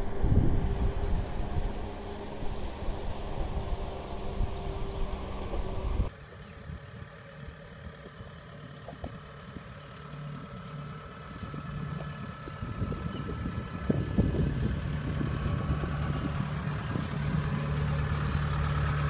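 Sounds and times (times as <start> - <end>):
wind on microphone: 0.0 - 6.1, 11.4 - 18.5
combine harvester engine running: 0.0 - 19.0
tractor working in mud: 0.0 - 19.0.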